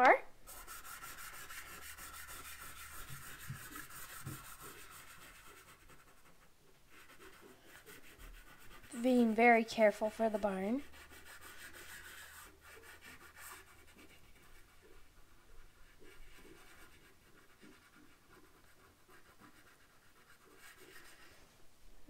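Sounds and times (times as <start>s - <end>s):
chalk pastel scratching paper: 0.4s - 21.5s.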